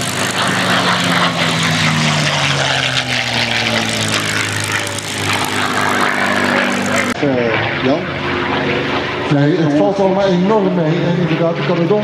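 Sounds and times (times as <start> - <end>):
aircraft engine droning: 0.0 - 12.0.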